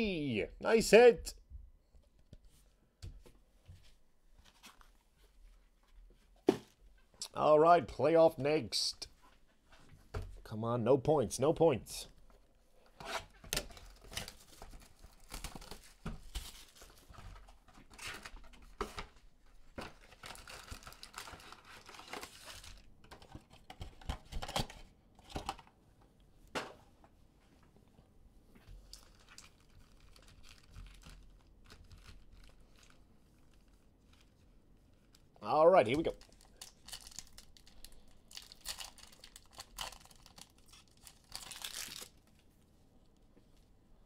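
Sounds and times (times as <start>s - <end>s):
foil packs rustling: 19.9s - 22.9s, 36.1s - 42.2s.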